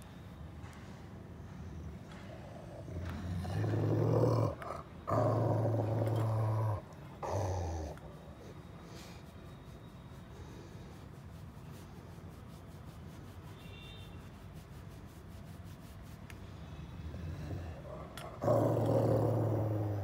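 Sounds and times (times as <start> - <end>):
dog growling: 2.5 - 8.2, 17.1 - 20.0.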